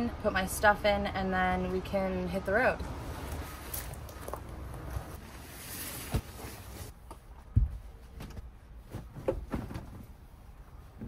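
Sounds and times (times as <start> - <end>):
fabric rustling: 3.3 - 7.0, 7.7 - 11.0
soft thumps of mattress: 7.5 - 10.2.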